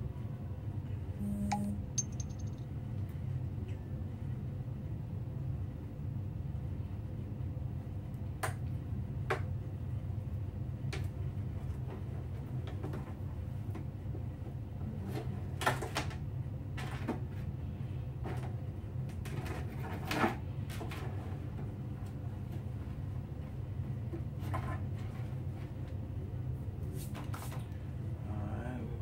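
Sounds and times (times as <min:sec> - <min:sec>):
steady low hum: 0:00.0 - 0:02.8.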